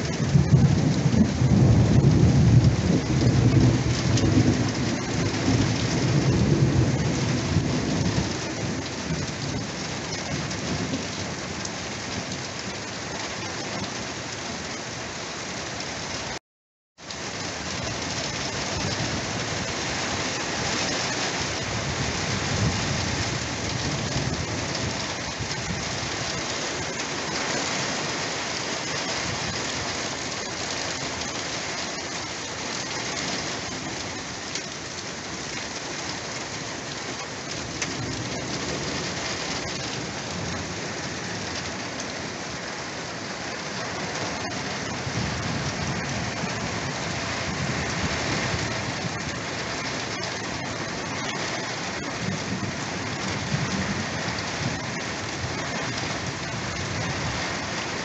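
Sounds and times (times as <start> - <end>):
heavy rain pouring: 0.0 - 16.4, 17.0 - 58.0
wind gusting in pine trees: 17.4 - 58.0.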